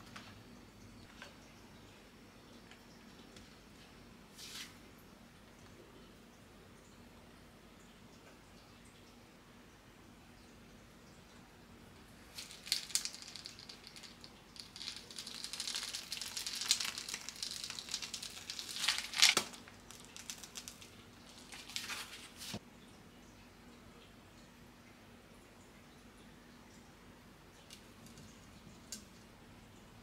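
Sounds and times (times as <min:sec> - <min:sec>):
plastic piping bag crinkling: 0:12.3 - 0:22.6.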